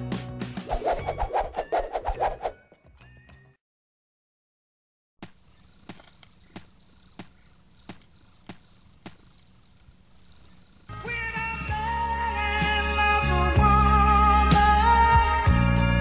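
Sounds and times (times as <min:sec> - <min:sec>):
music: 0:00.0 - 0:03.6, 0:10.9 - 0:16.0
cricket chirping: 0:05.2 - 0:16.0.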